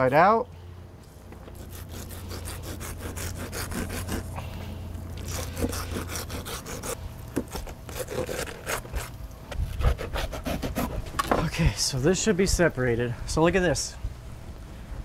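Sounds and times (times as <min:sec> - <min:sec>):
knife sawing through fish meat: 0:01.6 - 0:04.4, 0:05.2 - 0:11.0.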